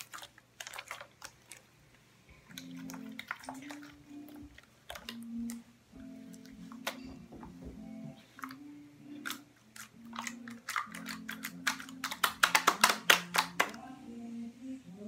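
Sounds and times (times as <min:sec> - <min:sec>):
slime kneaded wet clicks: 0:09.2 - 0:13.8.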